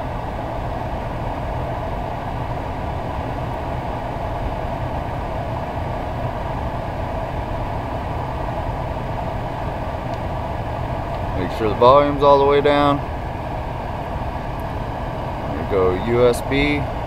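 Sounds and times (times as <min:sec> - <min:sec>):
ventilation fan running: 0:00.0 - 0:17.0
car engine idling: 0:09.6 - 0:16.9.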